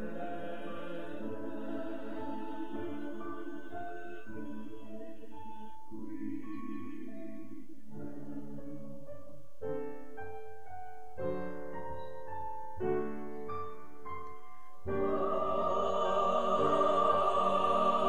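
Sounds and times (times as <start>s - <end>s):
choir singing: 0.0s - 9.2s, 14.9s - 18.0s.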